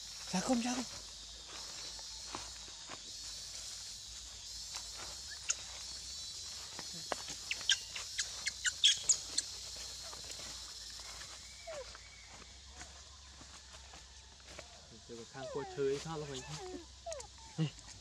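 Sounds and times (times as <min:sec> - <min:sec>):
baby monkey squeaking: 0:07.4 - 0:10.1, 0:15.4 - 0:17.6.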